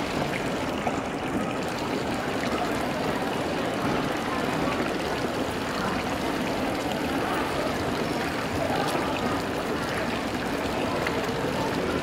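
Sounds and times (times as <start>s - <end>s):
faint voices: 0.0s - 12.0s.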